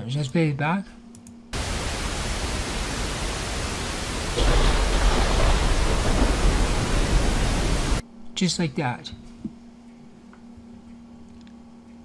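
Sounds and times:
heavy rain hiss: 1.6s - 8.0s
thunderclap rumble: 1.6s - 8.0s.

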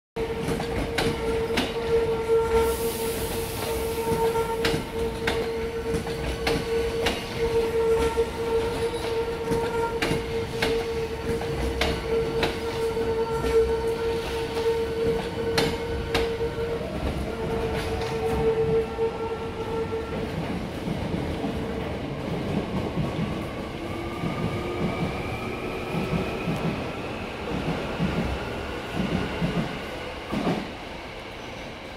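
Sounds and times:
train wheels clacking over rail joints: 3.6s - 13.6s.

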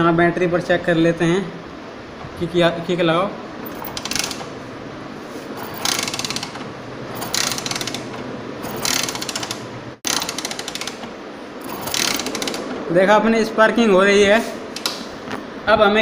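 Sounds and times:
motorcycle kick-starter ratcheting: 3.7s - 4.5s, 5.6s - 12.8s.

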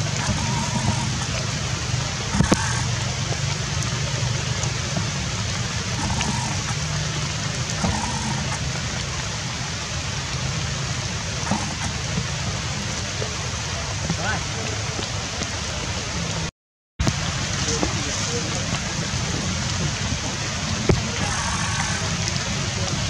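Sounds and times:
low hum: 0.0s - 14.1s
even hiss: 11.2s - 13.4s.

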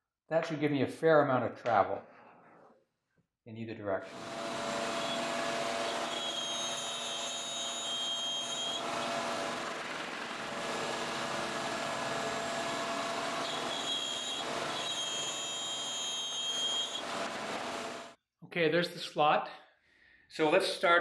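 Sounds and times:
router machine running: 4.1s - 18.1s.

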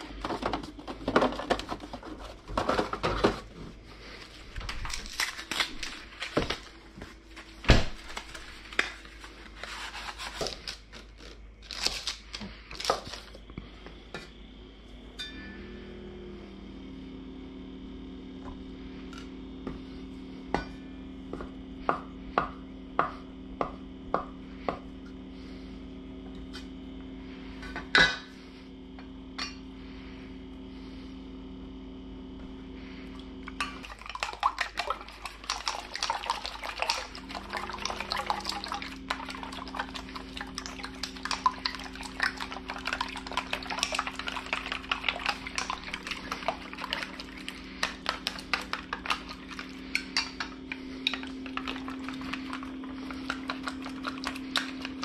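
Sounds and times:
low hum: 12.4s - 55.0s
chopsticks beating eggs in bowl: 33.6s - 55.0s.

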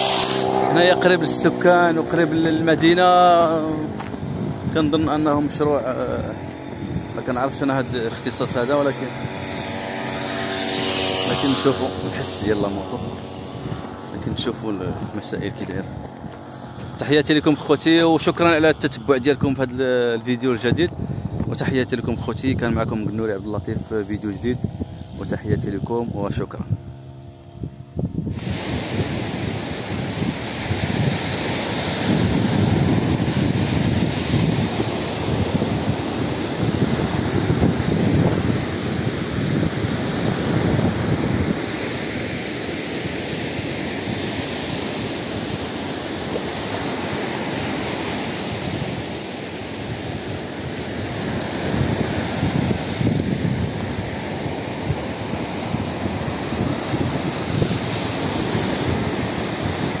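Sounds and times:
wind buffeting microphone: 0.0s - 60.0s.

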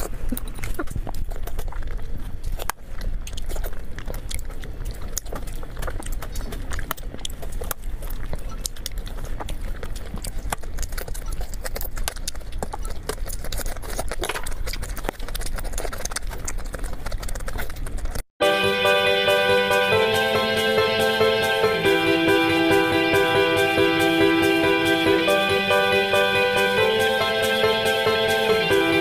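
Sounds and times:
chewing and mouth sounds: 0.0s - 18.2s
steady low hum: 18.4s - 29.0s.

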